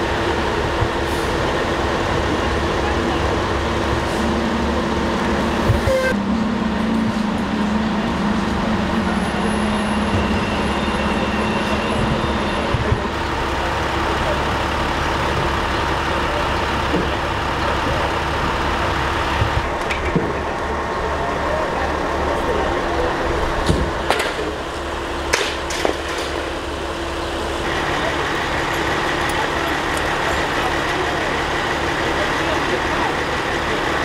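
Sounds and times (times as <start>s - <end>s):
engines idling: 0.0s - 34.0s.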